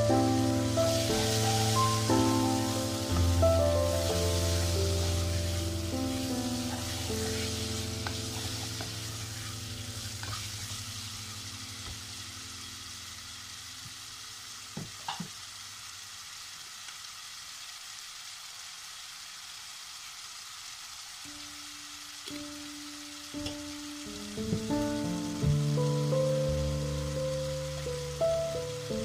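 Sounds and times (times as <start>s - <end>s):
chicken sizzling in hot oil: 0.0s - 29.0s.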